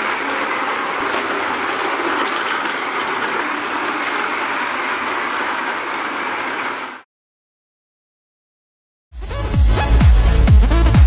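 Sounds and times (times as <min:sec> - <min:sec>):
toy trains rattling on track: 0:00.0 - 0:07.0.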